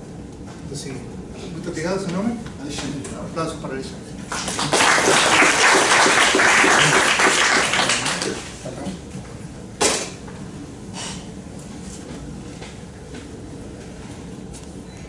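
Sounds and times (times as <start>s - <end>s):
audience applauding: 4.3s - 8.5s.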